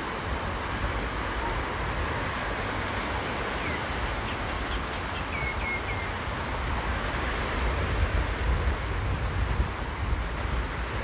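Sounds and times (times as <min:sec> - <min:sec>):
waves washing onto pebbles: 0:00.0 - 0:11.0
bird chirping: 0:03.6 - 0:06.1.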